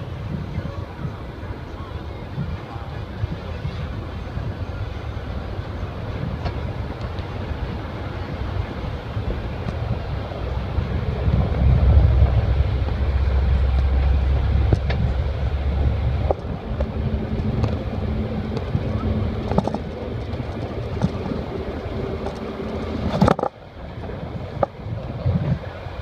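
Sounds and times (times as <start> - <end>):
moving bus rumble: 0.0 - 26.0
wind buffeting microphone: 0.0 - 26.0.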